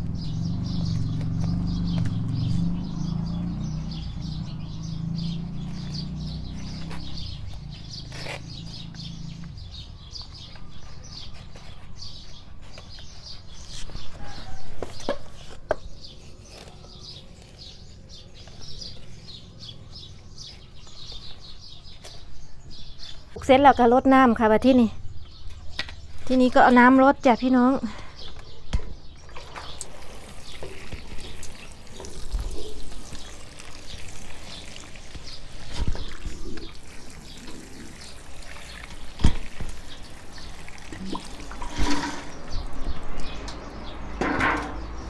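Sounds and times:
birds chirping: 0:00.0 - 0:45.0
knocks and rustles of potting mix: 0:28.7 - 0:45.0.

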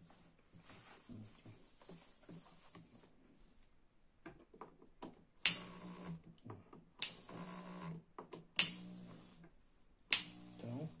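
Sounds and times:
sharp clicks: 0:10.1 - 0:10.4.

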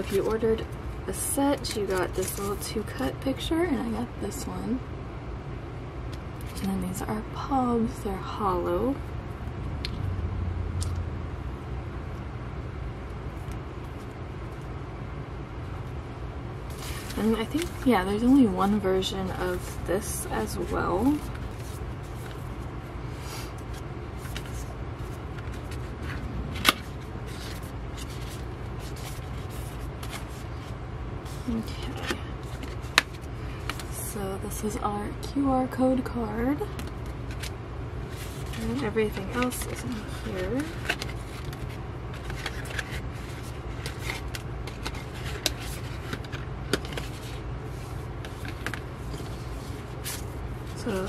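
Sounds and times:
steady low hum: 0:00.0 - 0:51.0
cardboard rustling and scraping: 0:23.7 - 0:33.9, 0:38.1 - 0:51.0.

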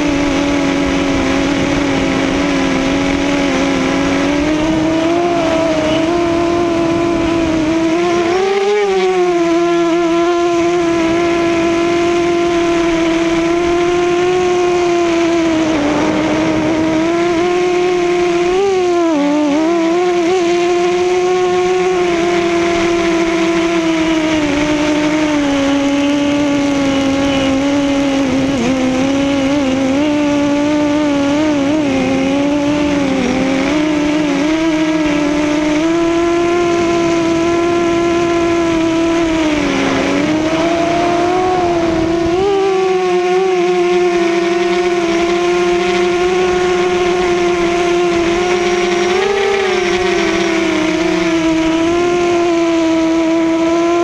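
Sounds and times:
drone propellers whining: 0:00.0 - 0:54.0
wind rushing: 0:12.8 - 0:18.5, 0:36.7 - 0:44.6.

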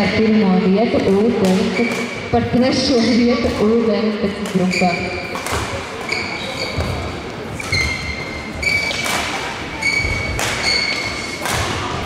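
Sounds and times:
rackets striking shuttlecock: 0:01.4 - 0:02.3, 0:04.4 - 0:12.0
shoes squeaking on sports floor: 0:01.5 - 0:02.3, 0:04.5 - 0:11.4.

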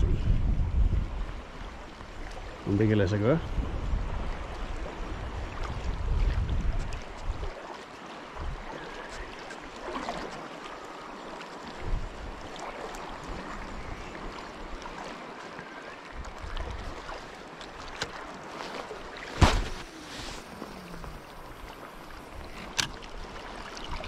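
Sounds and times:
wind on microphone: 0:00.0 - 0:02.3, 0:03.4 - 0:07.5, 0:11.8 - 0:12.4
sea water sloshing and lapping: 0:01.1 - 0:02.8, 0:03.4 - 0:24.0
fishing rod swish: 0:19.3 - 0:20.9.

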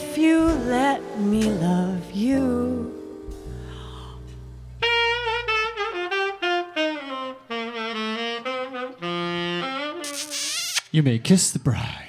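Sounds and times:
low piano chord: 0:00.0 - 0:06.5
saxophone jazz ballad: 0:00.0 - 0:10.9.

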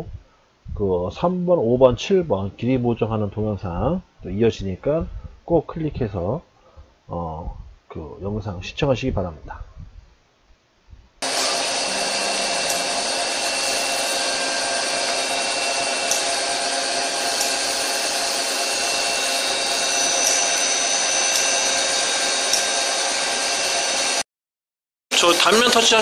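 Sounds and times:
lathe machine whir: 0:11.2 - 0:24.2.

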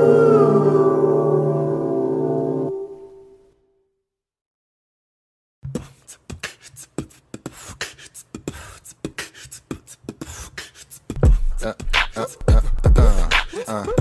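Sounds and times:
heavy deep bass beat: 0:11.1 - 0:14.0.

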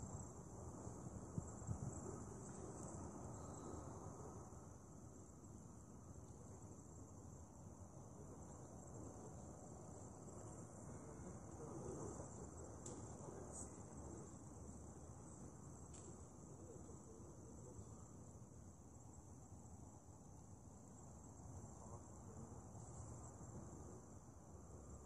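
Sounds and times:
high-pitched insect chorus: 0:00.0 - 0:25.0
low background hum: 0:00.0 - 0:25.0
faint clicks: 0:12.8 - 0:13.8.

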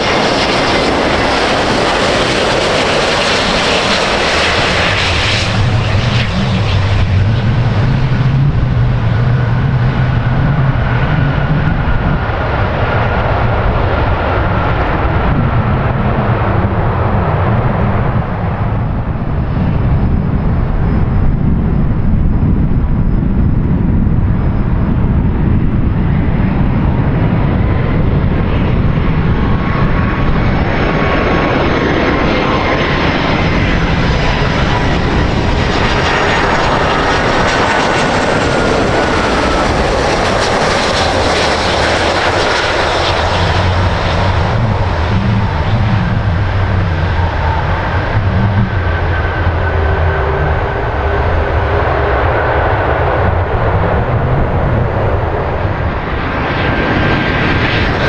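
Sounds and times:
jet engines rumbling: 0:00.0 - 0:58.0
hissing whine: 0:32.0 - 0:54.2.

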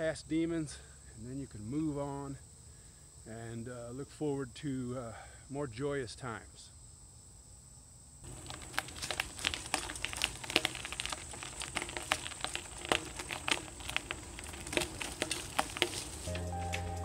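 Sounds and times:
bicycle tyres crackling over leaves: 0:08.2 - 0:17.0
bike rattling: 0:08.3 - 0:17.0.

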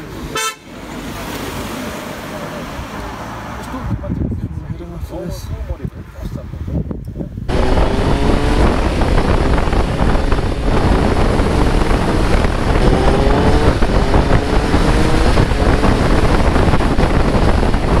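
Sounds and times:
wind rush on microphone: 0:03.7 - 0:18.0
motorcycle engine accelerating: 0:07.5 - 0:18.0.

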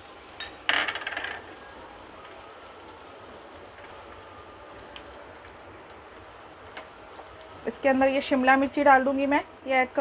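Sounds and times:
hot oil sizzling in a wok: 0:00.0 - 0:10.0.

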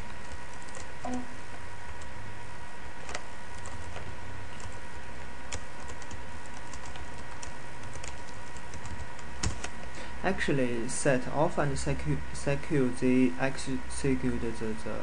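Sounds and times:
keyboard typing: 0:00.0 - 0:01.2, 0:03.0 - 0:04.9, 0:05.5 - 0:09.9
steady background hum: 0:00.0 - 0:15.0.

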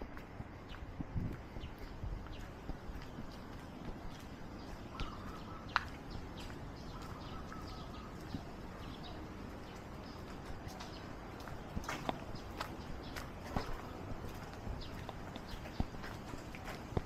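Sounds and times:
footsteps on a path: 0:00.0 - 0:17.0
bird chirps: 0:04.6 - 0:11.1.

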